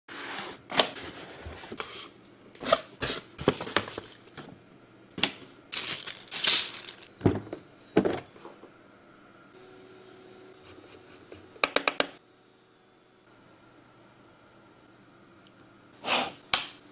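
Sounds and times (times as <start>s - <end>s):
box and plastic cover handling: 3.0s - 4.5s, 5.7s - 7.1s
plastic crinkling: 5.7s - 7.1s.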